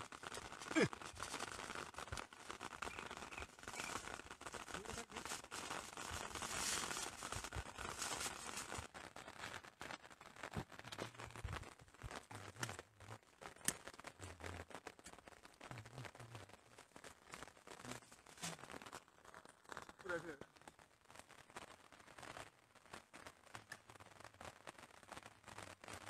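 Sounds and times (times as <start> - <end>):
plastic bag crinkling: 0.1 - 9.5.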